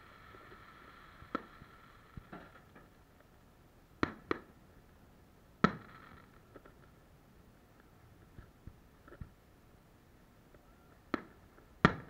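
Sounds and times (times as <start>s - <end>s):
fireworks bangs: 0.0s - 3.1s, 4.0s - 4.6s, 5.6s - 6.9s, 10.9s - 12.0s.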